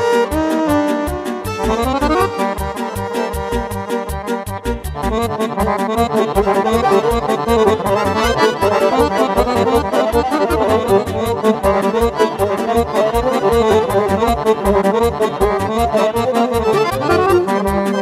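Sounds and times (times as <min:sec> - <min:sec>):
accordion playing fast melody: 0:00.0 - 0:18.0
keyboard backing: 0:00.0 - 0:18.0
steady quick beat: 0:00.0 - 0:18.0
violin: 0:00.0 - 0:18.0.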